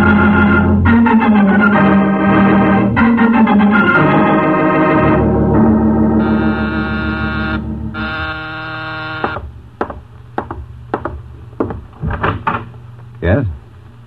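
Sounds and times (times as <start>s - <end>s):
sustained organ chords: 0.0s - 9.8s.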